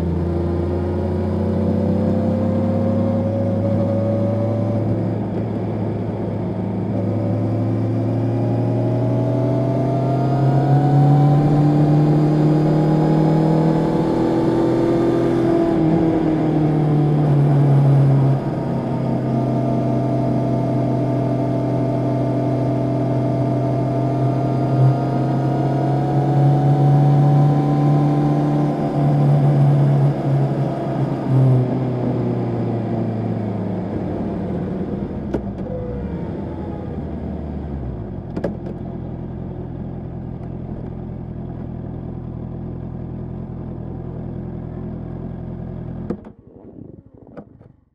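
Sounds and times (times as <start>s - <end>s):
motorcycle engine running: 33.0s - 47.7s.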